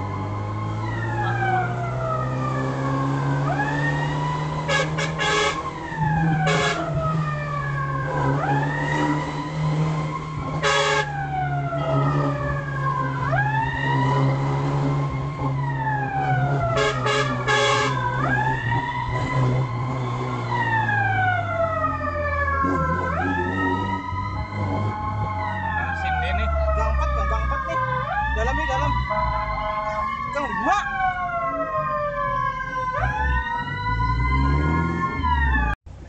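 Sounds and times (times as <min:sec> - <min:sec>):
fire engine siren wailing: 0:00.0 - 0:35.8
short horn blasts: 0:04.7 - 0:05.6, 0:06.4 - 0:06.9, 0:10.6 - 0:11.1, 0:16.8 - 0:18.0.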